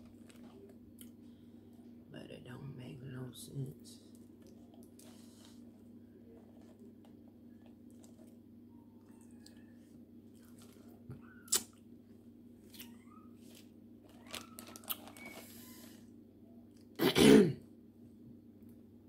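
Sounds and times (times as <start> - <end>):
steady low hum: 0.0 - 19.0
shrimp shells and plastic crinkling: 13.5 - 16.0.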